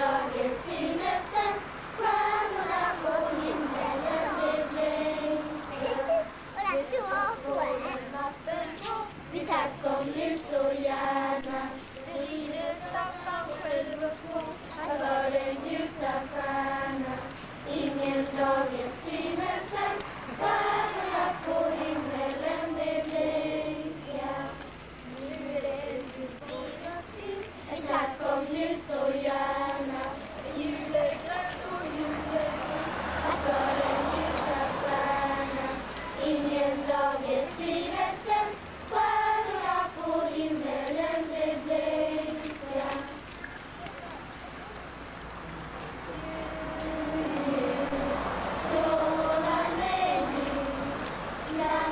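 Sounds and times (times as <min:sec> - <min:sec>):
children's choir singing: 0:00.0 - 0:06.5, 0:07.4 - 0:43.3, 0:46.0 - 0:51.9.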